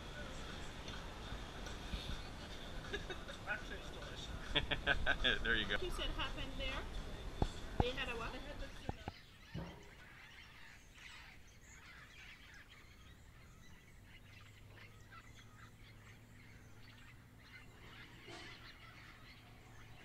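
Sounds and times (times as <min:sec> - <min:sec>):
bird chirps and calls: 0:07.4 - 0:20.0.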